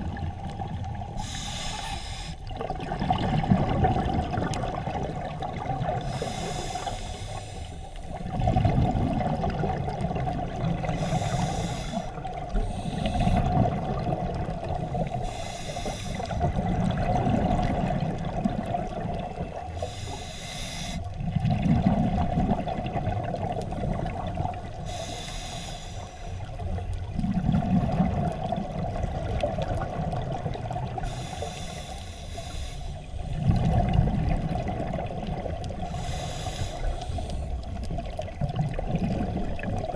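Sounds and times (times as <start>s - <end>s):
bubbling rumble on exhale: 0.0s - 1.7s, 2.4s - 6.9s, 8.0s - 15.4s, 16.1s - 19.8s, 21.1s - 25.0s, 26.4s - 31.4s, 33.0s - 39.9s
steady hum: 0.0s - 2.5s
regulator hiss on inhale: 1.2s - 2.5s, 6.0s - 8.2s, 10.8s - 13.5s, 15.1s - 16.4s, 19.7s - 21.2s, 24.7s - 26.7s, 31.0s - 33.4s, 35.7s - 37.8s.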